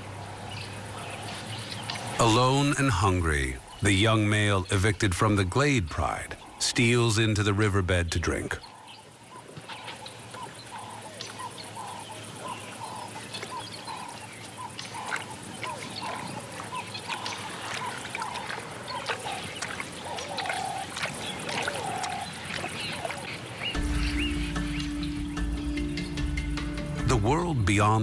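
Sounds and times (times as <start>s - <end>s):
birds chirping: 0.0s - 28.0s
lion lapping water: 8.6s - 25.0s.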